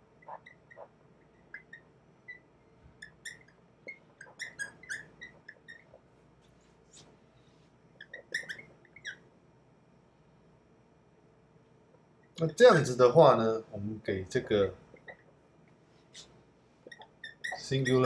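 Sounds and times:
marker squeaking on whiteboard: 0:00.2 - 0:06.1, 0:08.0 - 0:09.3, 0:14.9 - 0:15.4, 0:16.0 - 0:18.0.

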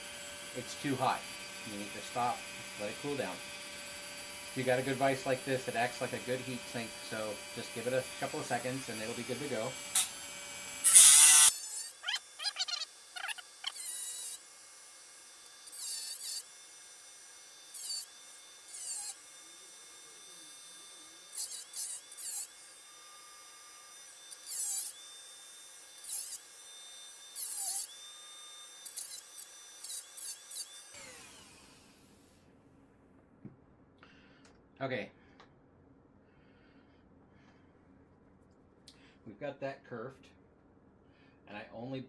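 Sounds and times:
cutoff wheel grinding metal: 0:00.0 - 0:14.5, 0:15.4 - 0:28.0, 0:28.6 - 0:32.0
rotary tool high whine: 0:00.0 - 0:32.4
rotary tool spinning down: 0:10.8 - 0:14.4, 0:28.8 - 0:32.1.

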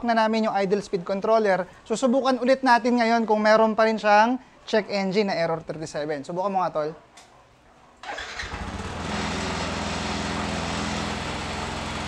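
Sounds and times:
scooter engine starting and idling: 0:08.0 - 0:12.0.

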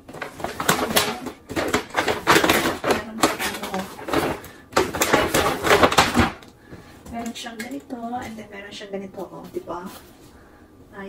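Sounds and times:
gift wrapping rustling and crinkling: 0:00.0 - 0:06.4.

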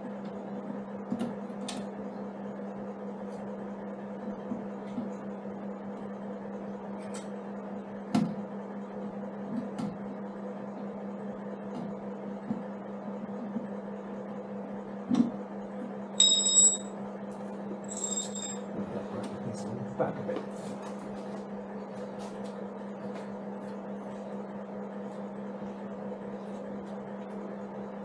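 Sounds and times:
ringing metal clink: 0:16.2 - 0:16.9, 0:17.9 - 0:18.7.

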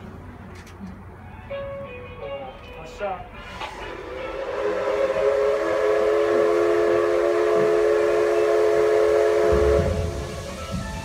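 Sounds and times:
steam locomotive whistle: 0:03.4 - 0:11.0.

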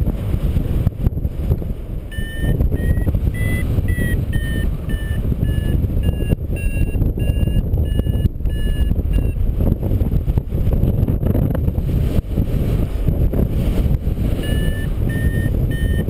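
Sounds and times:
wind noise on microphone: 0:00.0 - 0:16.0
variometer beeping: 0:02.1 - 0:09.5, 0:14.3 - 0:16.0.

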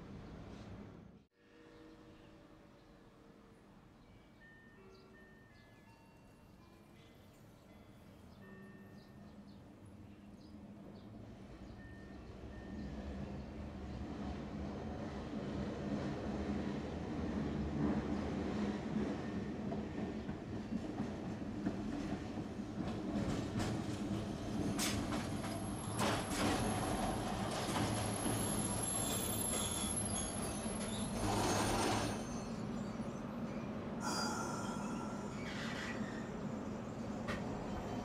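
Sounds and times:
tram rumbling on rails: 0:06.9 - 0:38.0
high wheel squeal: 0:28.2 - 0:33.3, 0:34.0 - 0:36.6.

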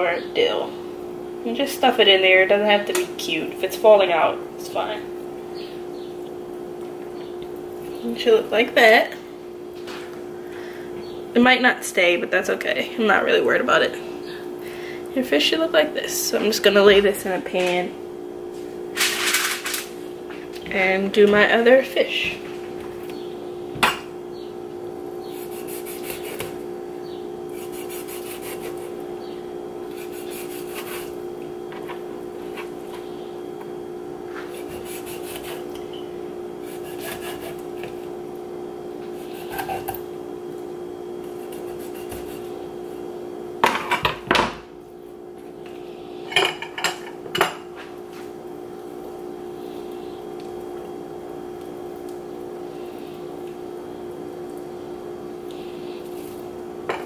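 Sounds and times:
steady hum: 0:00.0 - 0:57.0
knife scraping and slicing fish: 0:25.3 - 0:26.6, 0:27.5 - 0:29.0, 0:29.9 - 0:31.2, 0:34.4 - 0:35.7, 0:36.6 - 0:38.0, 0:39.1 - 0:40.0, 0:41.3 - 0:42.5.

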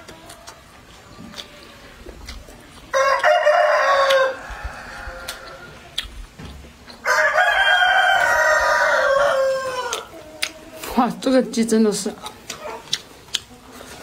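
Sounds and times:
rooster crowing: 0:02.9 - 0:05.8, 0:07.0 - 0:10.1.

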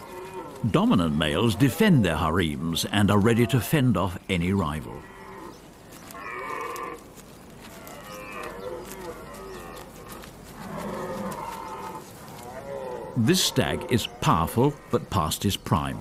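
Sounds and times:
deer stag roaring: 0:00.0 - 0:01.9, 0:04.9 - 0:15.1.

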